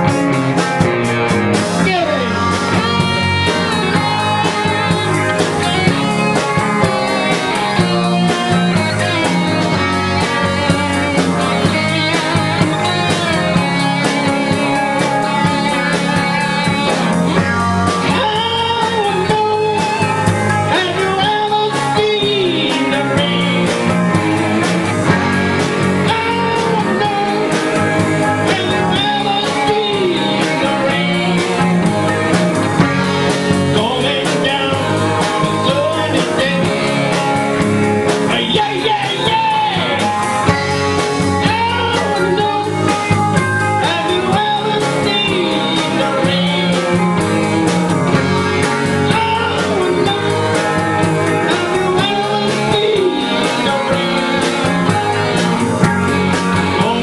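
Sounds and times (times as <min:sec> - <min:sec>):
drum kit: 0:00.0 - 0:57.0
electric guitars: 0:00.0 - 0:57.0
man singing into microphone: 0:01.8 - 0:10.4, 0:18.0 - 0:24.6, 0:26.0 - 0:31.9, 0:33.6 - 0:37.5, 0:38.2 - 0:40.4, 0:41.3 - 0:47.8, 0:48.8 - 0:55.5, 0:56.7 - 0:57.0.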